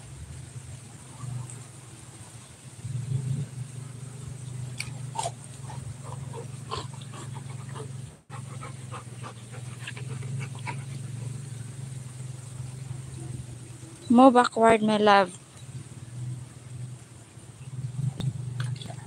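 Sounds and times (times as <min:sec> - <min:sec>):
steady low hum: 0:00.0 - 0:19.0
dog panting: 0:05.2 - 0:11.4.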